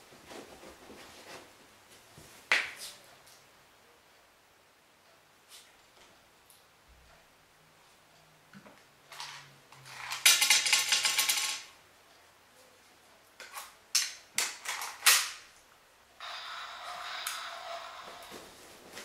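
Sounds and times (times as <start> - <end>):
toy gun caps popping: 14.0 - 15.4.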